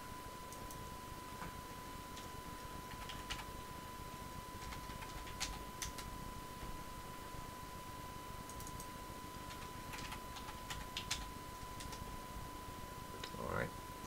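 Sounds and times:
keyboard and mouse clicks: 0:08.5 - 0:08.9, 0:09.5 - 0:12.0.

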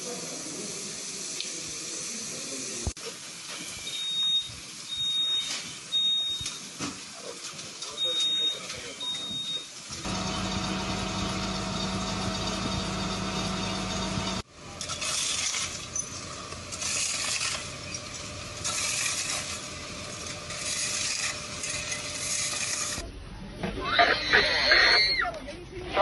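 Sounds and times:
machine hum: 0:09.9 - 0:23.0
shovels scraping glass and rubble: 0:14.7 - 0:23.0.

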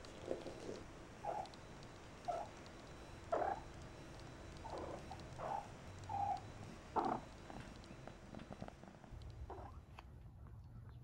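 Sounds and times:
faint ticks: 0:00.0 - 0:10.1.

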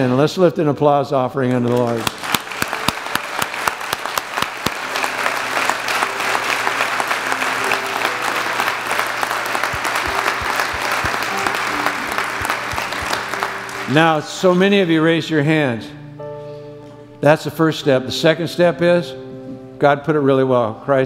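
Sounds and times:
congregation clapping: 0:01.6 - 0:14.9.

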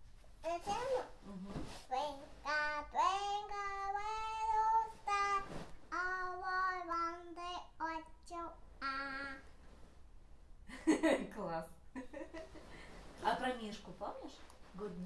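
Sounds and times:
girl singing: 0:01.8 - 0:09.6.

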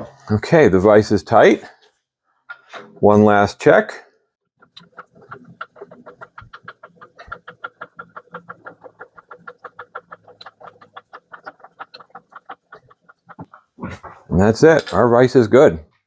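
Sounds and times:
fast even clicking: 0:04.6 - 0:14.8.

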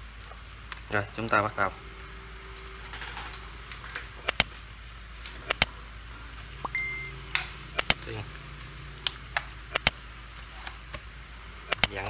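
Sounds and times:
high steady tone: 0:01.1 - 0:10.4.

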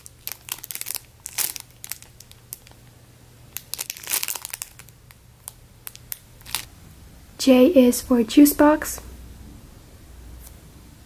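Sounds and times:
plastic bag crinkling: 0:00.0 - 0:02.8, 0:03.5 - 0:06.7.

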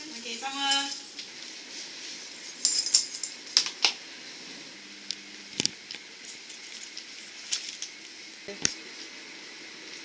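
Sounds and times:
metal items jingling: 0:00.0 - 0:01.1, 0:02.4 - 0:03.4.

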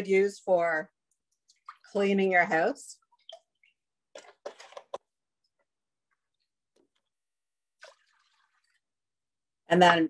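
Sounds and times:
plastic jug handling: 0:03.2 - 0:05.2
liquid splashing into saucepan: 0:07.6 - 0:08.9.

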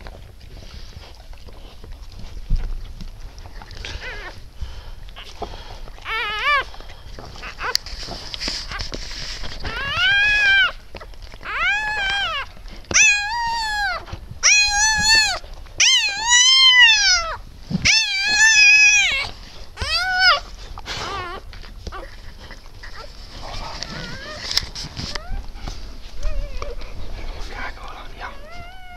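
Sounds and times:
puppy crying: 0:03.9 - 0:04.4, 0:06.0 - 0:07.8, 0:09.6 - 0:26.9, 0:28.1 - 0:28.9.

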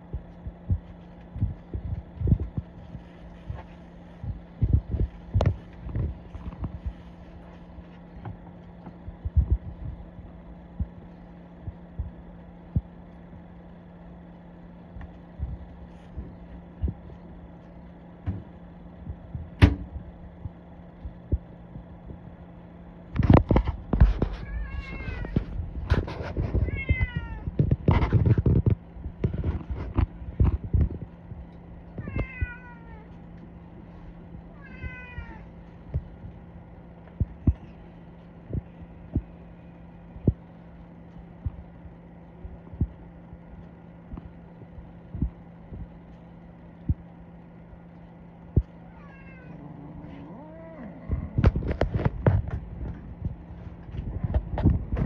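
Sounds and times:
steady low hum: 0:00.0 - 0:55.0
loud thumps and knocks: 0:19.4 - 0:20.0.

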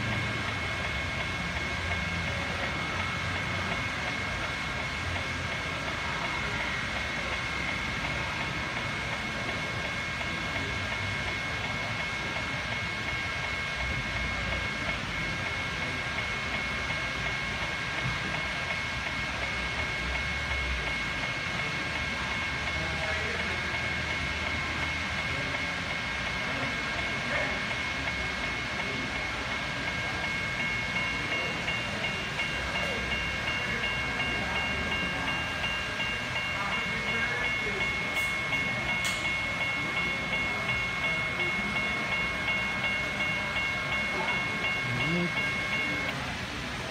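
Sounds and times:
exhibition hall noise: 0:00.0 - 0:46.9
model train rolling on track: 0:00.0 - 0:46.9
steady high tones: 0:00.0 - 0:46.9
steady high whine: 0:00.0 - 0:46.9
high pulsing tone: 0:30.6 - 0:46.2.

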